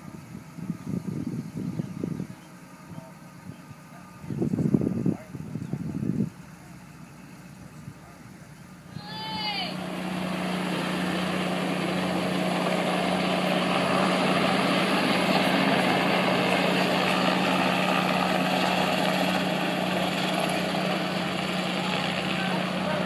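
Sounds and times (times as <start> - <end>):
helicopter flying past: 6.5 - 23.0.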